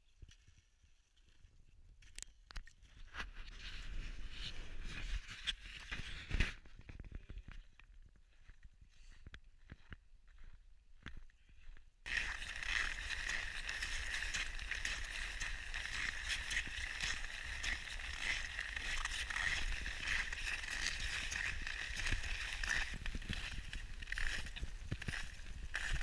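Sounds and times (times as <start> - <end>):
snow crunching and scraping: 12.1 - 26.0.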